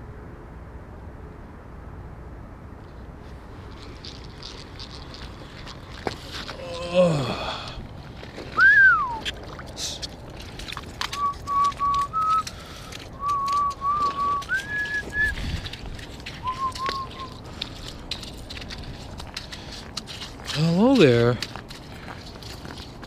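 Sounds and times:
person whistling a tune: 0:08.6 - 0:09.2, 0:11.1 - 0:12.5, 0:13.2 - 0:15.4, 0:16.4 - 0:17.4.

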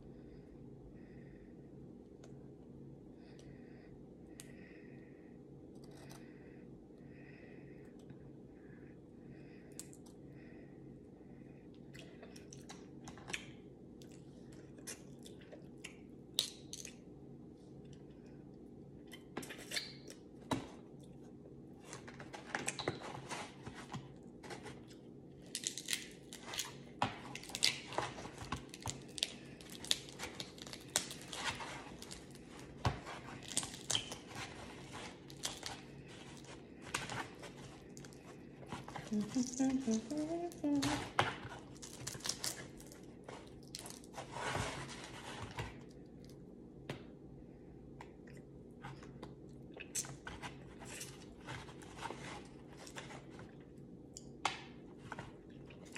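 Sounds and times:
steady low hum: 0:00.0 - 0:55.9
shells cracking and paper crinkling: 0:24.7 - 0:44.2.

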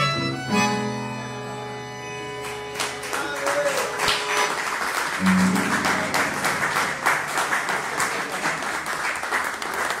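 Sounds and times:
held accordion note: 0:00.0 - 0:03.0, 0:04.0 - 0:05.4
audience applauding: 0:02.4 - 0:10.0.

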